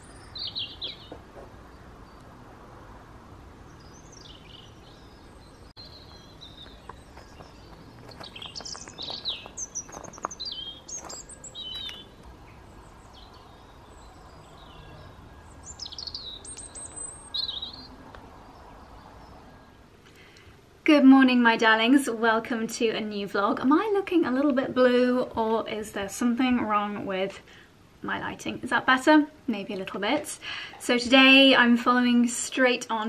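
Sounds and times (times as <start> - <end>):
songbirds chirping and whistling: 0.0 - 2.4, 3.5 - 20.6
faint steady background noise: 0.0 - 33.0.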